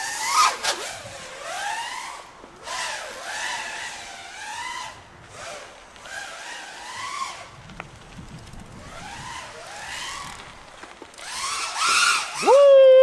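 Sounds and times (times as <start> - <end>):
quadcopter motors whining: 0.0 - 7.6, 8.7 - 13.0.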